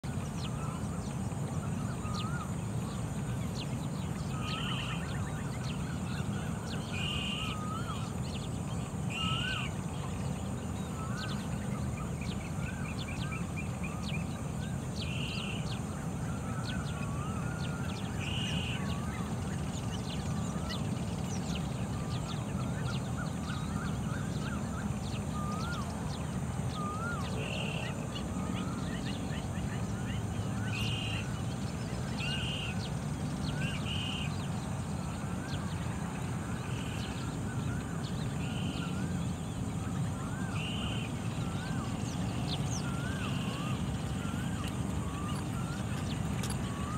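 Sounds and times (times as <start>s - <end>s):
other birds calling: 0.0s - 46.9s
crake calling: 36.6s - 46.9s.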